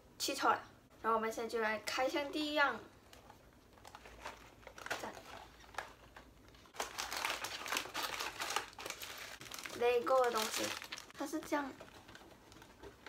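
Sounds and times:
plastic packaging crinkling: 0:03.0 - 0:13.0.

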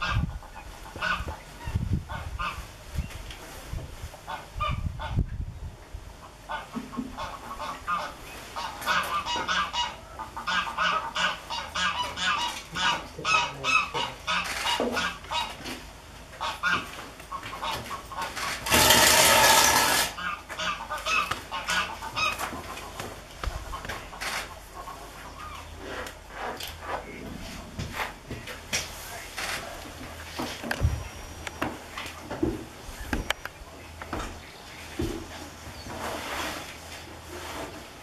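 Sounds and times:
geese honking: 0:00.0 - 0:02.7, 0:06.3 - 0:15.8, 0:16.4 - 0:26.5.

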